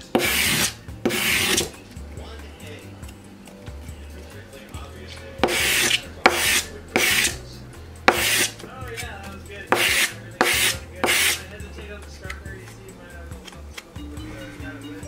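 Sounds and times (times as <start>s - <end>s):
squeegee rasping on sandpaper: 0.2s - 1.7s, 5.4s - 7.4s, 8.1s - 8.6s, 9.7s - 11.5s.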